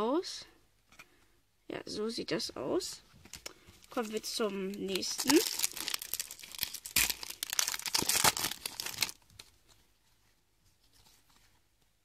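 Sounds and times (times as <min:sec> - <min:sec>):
wrapper tearing and crinkling: 0:03.8 - 0:09.4.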